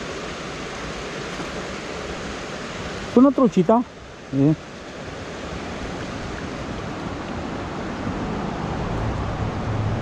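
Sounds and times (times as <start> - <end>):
river water rushing: 0.0 - 10.0
low hum: 8.3 - 10.0.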